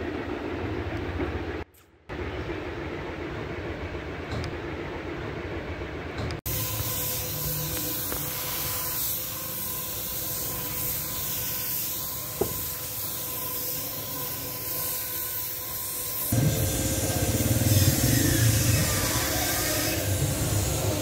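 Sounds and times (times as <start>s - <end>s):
spray gun hissing: 6.5s - 21.0s.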